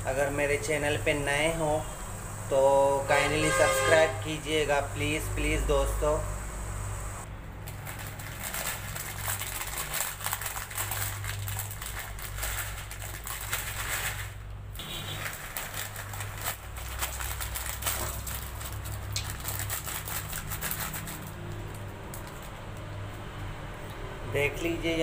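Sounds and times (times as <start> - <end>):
plastic wrapper crinkling: 7.6 - 23.3.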